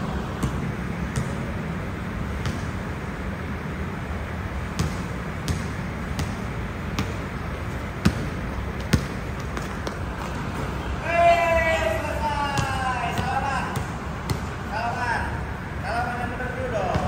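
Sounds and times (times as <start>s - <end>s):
basketball bouncing on hard court: 0.0s - 3.0s, 4.6s - 10.8s, 12.5s - 14.7s, 16.8s - 17.0s.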